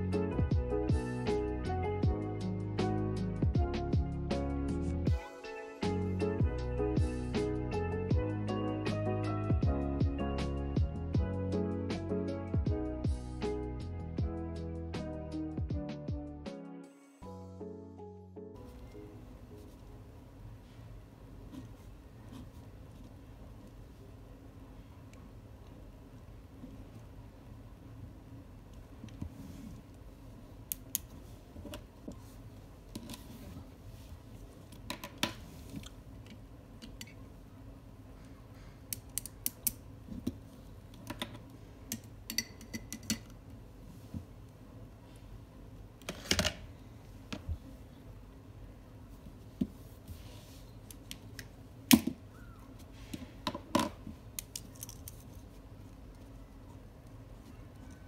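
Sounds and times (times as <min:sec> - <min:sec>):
small items clicking on desk: 0:53.5 - 0:55.5.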